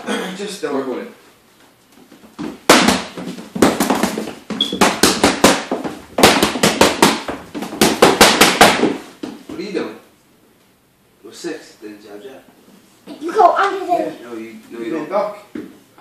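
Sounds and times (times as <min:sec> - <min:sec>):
boxing gloves slapping mitts: 0:02.4 - 0:09.4.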